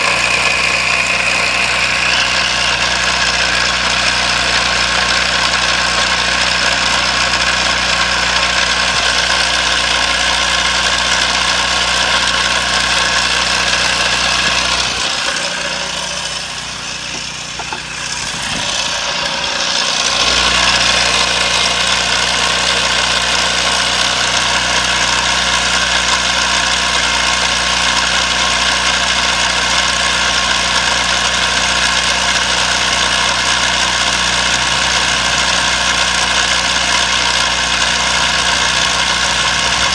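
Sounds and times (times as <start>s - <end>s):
small engine running: 0.0s - 39.9s.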